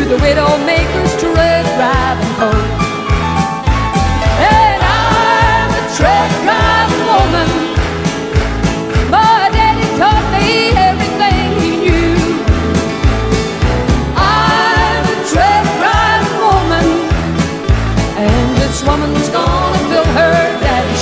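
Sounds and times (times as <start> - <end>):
song with vocal over beat: 4.2 - 8.3, 13.9 - 21.0.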